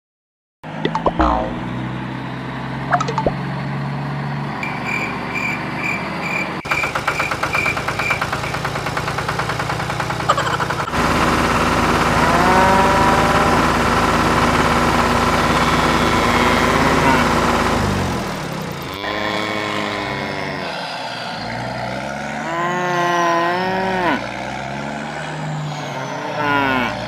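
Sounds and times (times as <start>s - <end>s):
high beeping: 0.9s - 1.7s
loud engine running: 1.2s - 22.9s
low engine hum: 7.2s - 22.8s.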